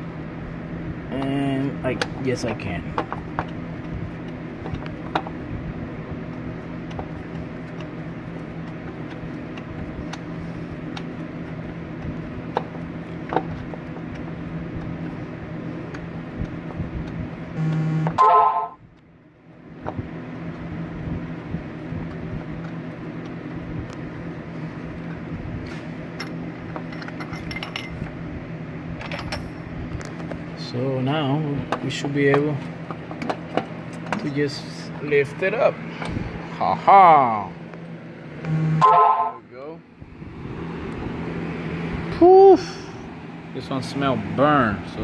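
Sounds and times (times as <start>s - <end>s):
steady low hum: 0.0s - 45.0s
loud beep-like tone: 17.6s - 18.8s, 38.5s - 39.4s.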